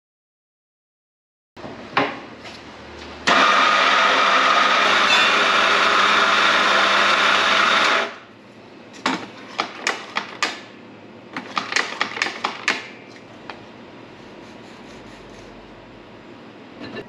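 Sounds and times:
electric coffee grinder running: 3.3 - 8.3.

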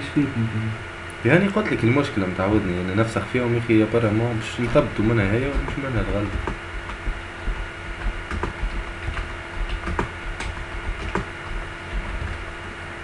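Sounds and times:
steady low hum: 0.0 - 13.0
mouse and keyboard clicking: 8.0 - 11.3.

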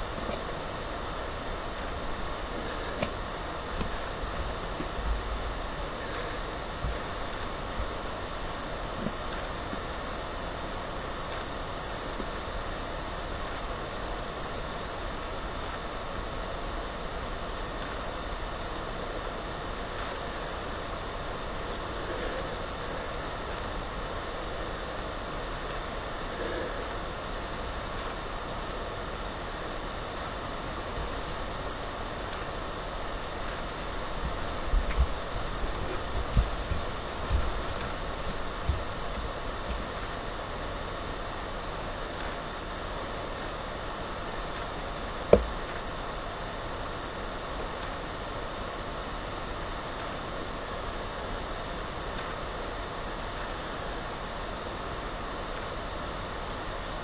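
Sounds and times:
background hiss: 0.0 - 57.0
faint high whine: 0.0 - 57.0
faint low hum: 0.0 - 57.0.

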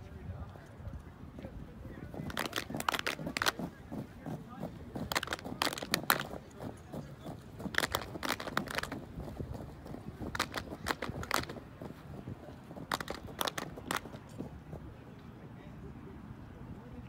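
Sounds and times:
hand claps and slaps: 2.2 - 3.7, 5.0 - 6.4, 7.6 - 9.4, 10.2 - 11.6, 12.8 - 14.2.

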